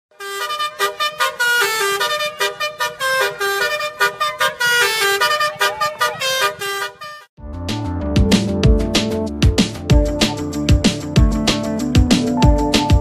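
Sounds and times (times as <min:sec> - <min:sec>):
musical bus horn tune: 0:00.1 - 0:07.4.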